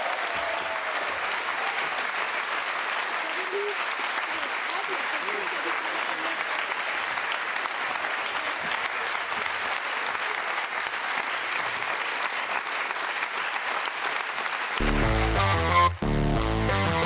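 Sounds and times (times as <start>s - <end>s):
audience applauding and cheering: 0.0s - 17.0s
electronic music with heavy bass: 14.8s - 17.0s.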